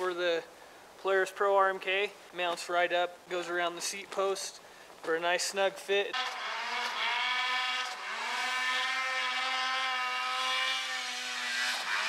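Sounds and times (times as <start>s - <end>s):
snowmobile engine revving: 6.1s - 12.0s.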